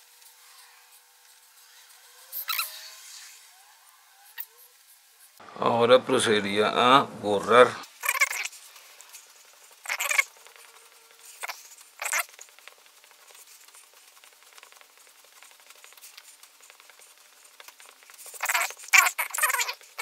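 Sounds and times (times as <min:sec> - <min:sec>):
hand brushing paper: 0:07.9 - 0:20.0.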